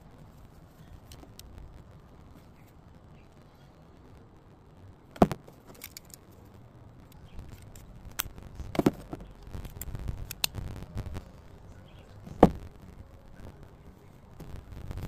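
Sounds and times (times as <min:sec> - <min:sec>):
low rumble: 0:06.2 - 0:15.0.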